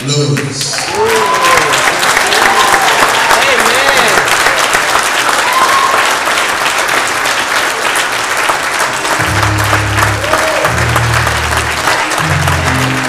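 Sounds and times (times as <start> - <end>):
crowd applauding: 0.0 - 13.0
low held instrument chords: 9.2 - 13.0.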